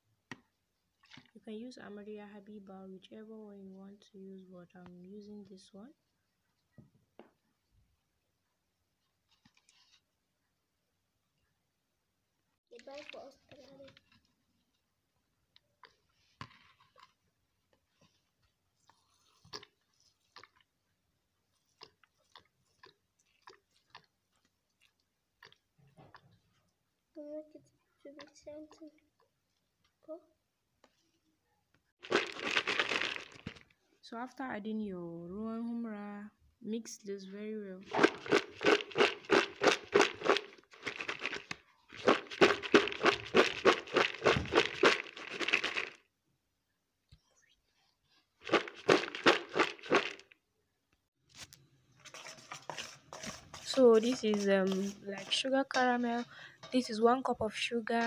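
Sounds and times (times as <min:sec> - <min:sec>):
wood chips crackling in metal pot: 0:32.0 - 0:33.6, 0:52.0 - 0:57.0
wood chips rustling in a bowl: 0:32.0 - 0:33.6, 0:37.9 - 0:46.0, 0:48.4 - 0:50.3, 0:52.0 - 0:56.2.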